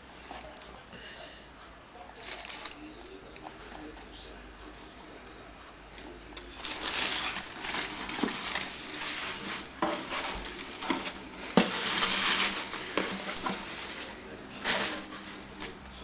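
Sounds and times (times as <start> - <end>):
tissue paper crinkling: 2.2 - 2.9, 6.5 - 15.8.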